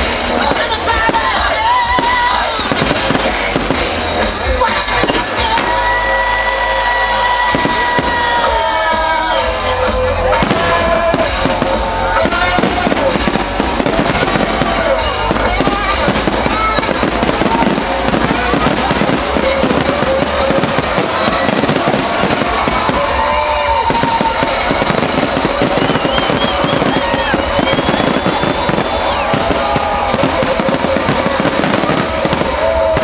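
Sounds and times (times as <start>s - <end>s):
fireworks bursting and crackling: 0.0s - 33.0s.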